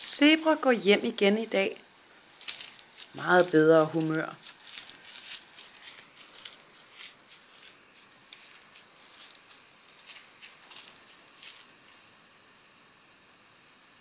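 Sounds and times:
crinkly taps and rustles: 0:02.3 - 0:12.2.

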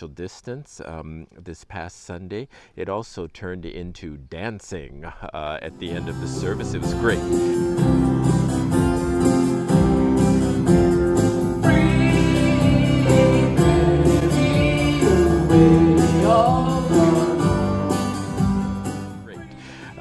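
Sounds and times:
guitar: 0:05.6 - 0:20.0
keyboard: 0:05.6 - 0:20.0
electric bass: 0:05.8 - 0:20.0
man singing: 0:11.6 - 0:18.4.

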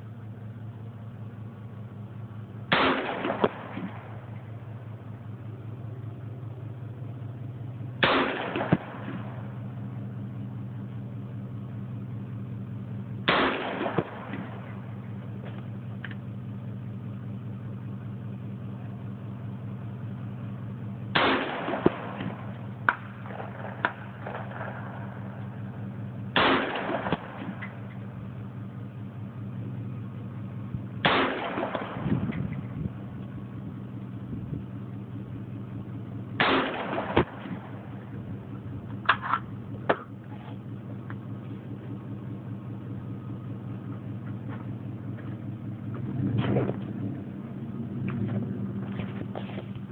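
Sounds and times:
rifle shots with short echo: 0:02.7 - 0:04.6, 0:08.0 - 0:09.8, 0:13.2 - 0:15.0, 0:21.1 - 0:27.9, 0:31.0 - 0:32.7, 0:36.3 - 0:38.1.

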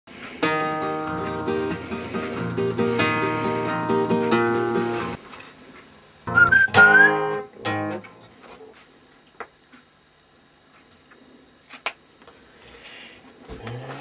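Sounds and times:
acoustic guitar strummed: 0:00.4 - 0:05.2, 0:06.3 - 0:08.3.

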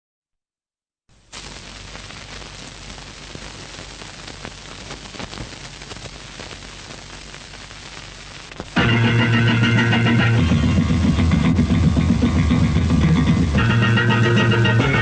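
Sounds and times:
crackles and clicks: 0:01.1 - 0:10.1
steady hiss: 0:01.1 - 0:15.0.

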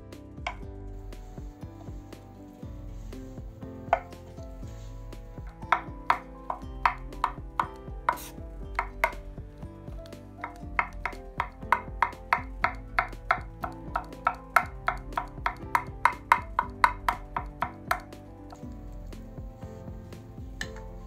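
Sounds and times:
knife chopping on wooden board: 0:05.5 - 0:09.3, 0:10.4 - 0:18.1.

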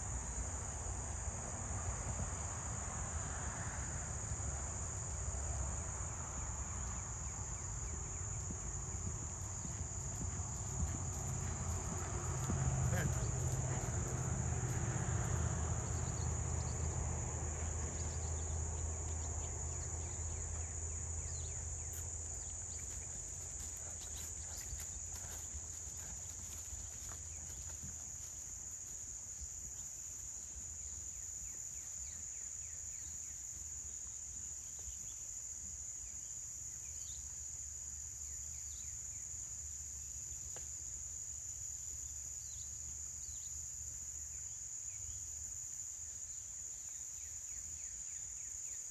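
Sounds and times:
insects chorus: 0:00.0 - 0:48.9.

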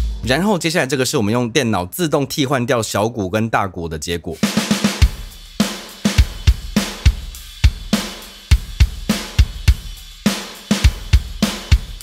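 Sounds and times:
hi-hat and cymbals: 0:00.0 - 0:00.7, 0:04.4 - 0:12.0.

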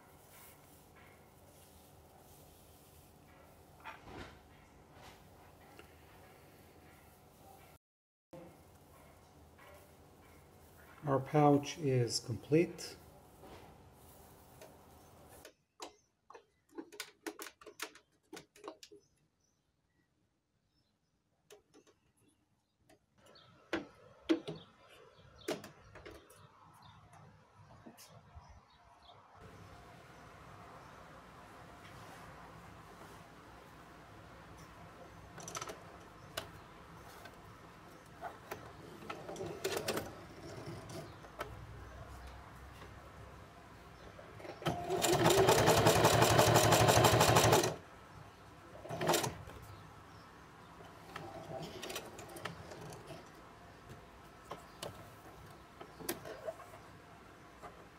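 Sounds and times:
hand-cranked sewing machine clicking: 0:38.4 - 0:41.5, 0:44.4 - 0:47.8, 0:48.8 - 0:49.5.

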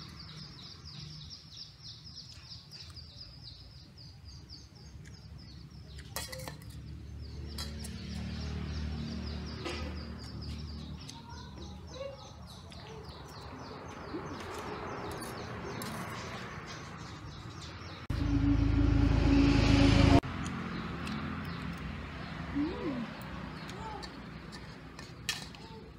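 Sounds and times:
small bird chirping: 0:00.0 - 0:18.4
cutlery clinking on metal plate: 0:06.1 - 0:06.8
loud low rumbling with hum: 0:18.1 - 0:20.2.

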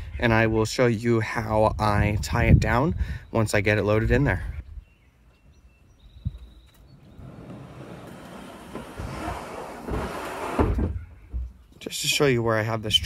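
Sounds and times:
kayak hull scraping: 0:07.1 - 0:11.0
low thuds of hull: 0:07.2 - 0:11.7.

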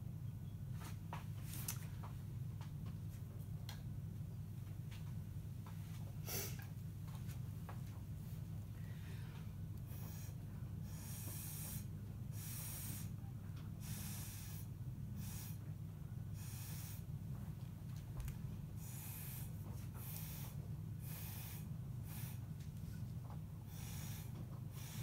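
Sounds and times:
steady low hum: 0:00.0 - 0:25.0
hissing breaths: 0:08.8 - 0:13.2, 0:13.8 - 0:15.7, 0:16.4 - 0:17.1, 0:18.8 - 0:22.5, 0:23.6 - 0:25.0.

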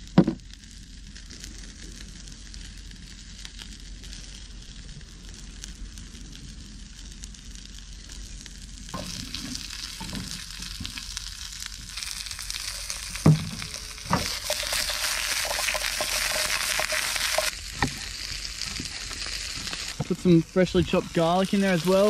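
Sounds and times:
vegetables sizzling in a pan: 0:05.6 - 0:22.0.

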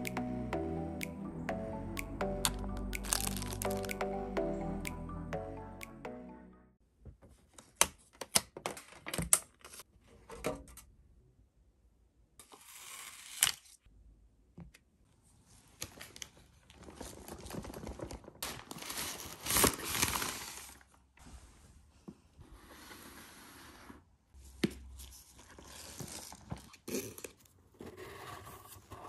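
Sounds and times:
plastic bag rustling and crinkling: 0:15.9 - 0:20.9.

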